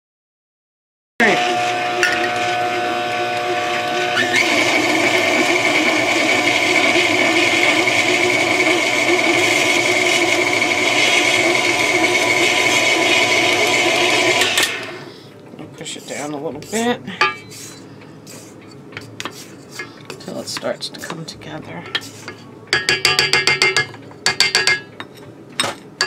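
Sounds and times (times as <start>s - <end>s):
stand mixer motor whine: 1.2s - 15.1s.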